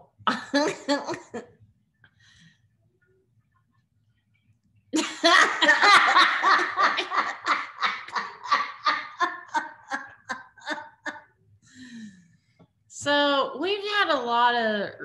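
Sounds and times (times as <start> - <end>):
women laughing: 0.3 - 1.5, 5.0 - 11.3.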